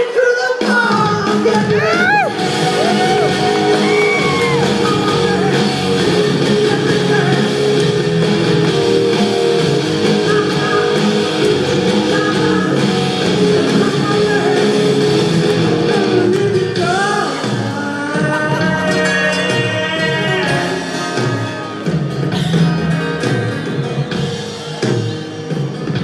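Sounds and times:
man singing: 0.0 - 8.1, 10.0 - 22.1
distant live rock band: 0.0 - 26.0
electric guitar: 0.0 - 26.0.

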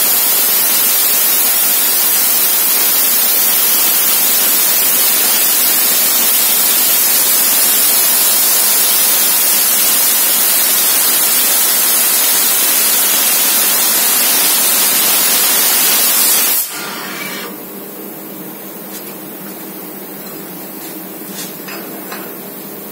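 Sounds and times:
laser cutter hissing: 0.0 - 17.7
machine background hum: 16.6 - 22.9.

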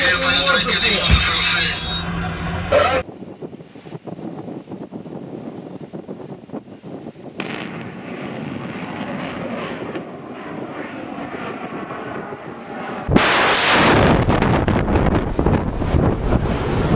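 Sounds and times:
distant rocket motor roaring: 7.4 - 16.9
loud bang: 13.1 - 14.8.

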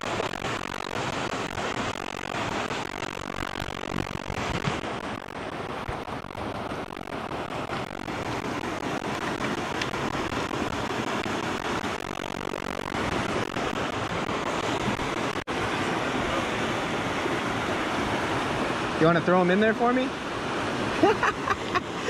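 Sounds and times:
river water rushing: 13.1 - 19.5.

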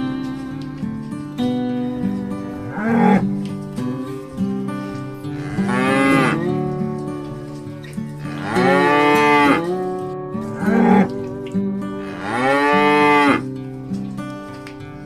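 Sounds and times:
soft guitar music: 0.0 - 15.0
water buffalo mooing: 2.5 - 3.4, 5.2 - 6.7, 8.2 - 11.2, 11.9 - 13.5.

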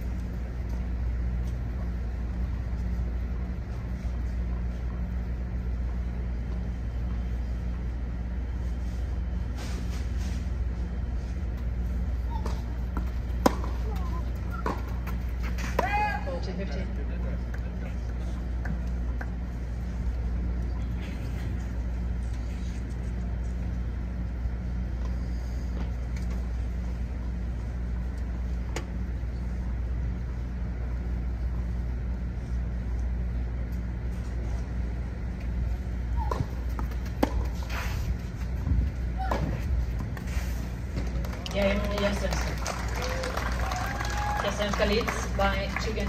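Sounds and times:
steady low rumble: 0.0 - 42.7.

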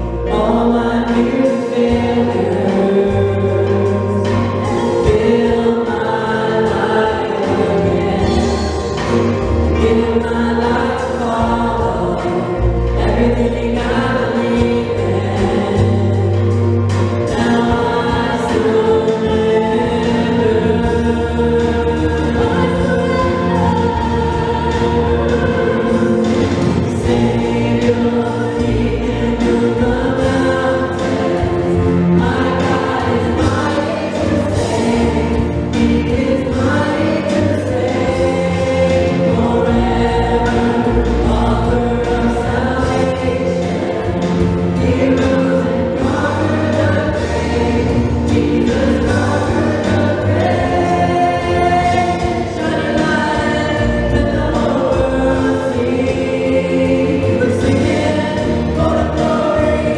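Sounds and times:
drums: 0.0 - 59.9
keyboard: 0.0 - 59.9
voices singing together: 0.0 - 59.9.

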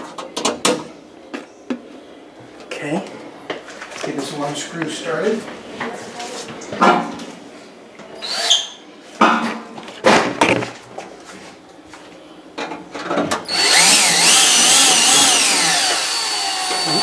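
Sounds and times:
power drill driving screw: 13.5 - 17.0.

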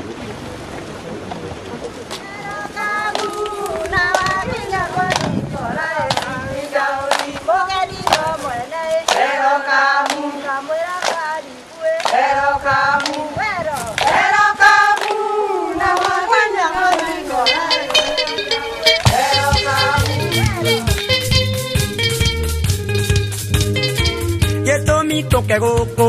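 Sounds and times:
group of voices singing: 2.3 - 21.2
hand claps: 6.1 - 6.3, 7.1 - 7.4, 8.0 - 8.3, 11.0 - 11.2, 16.0 - 16.2, 18.9 - 23.8.

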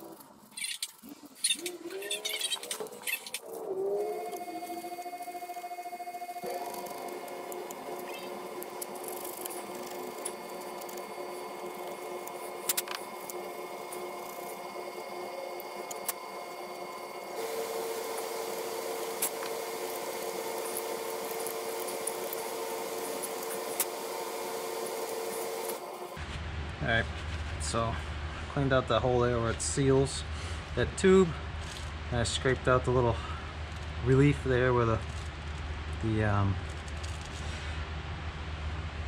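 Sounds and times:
small power tool running: 4.0 - 26.2.

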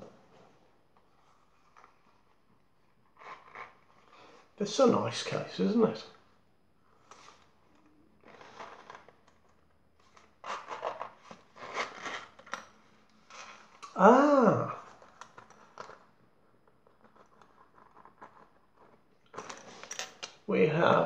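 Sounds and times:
metal zip rasping open: 3.2 - 3.9, 10.4 - 12.5.

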